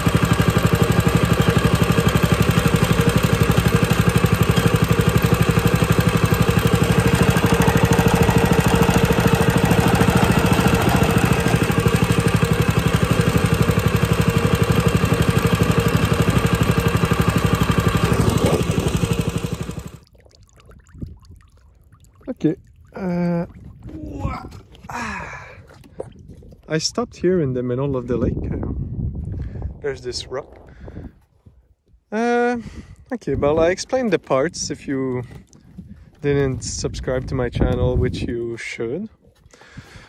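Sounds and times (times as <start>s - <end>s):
small engine running: 0.0s - 20.0s.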